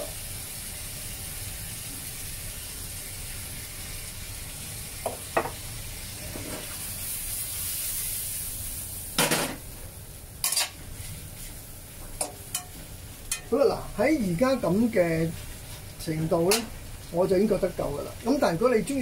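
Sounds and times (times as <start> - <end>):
food sizzling in a frying pan: 0.0 - 19.0.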